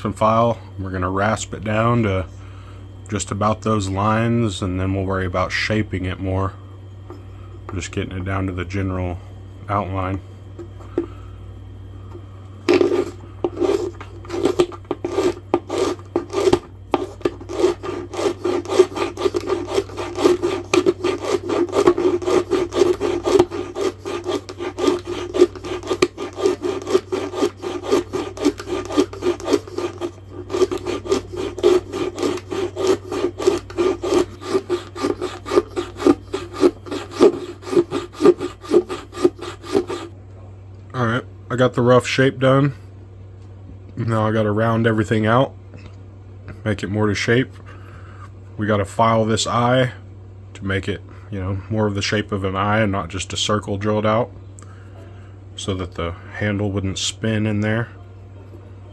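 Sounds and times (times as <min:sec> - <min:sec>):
hand rasp scraping wood: 0:12.7 - 0:40.1.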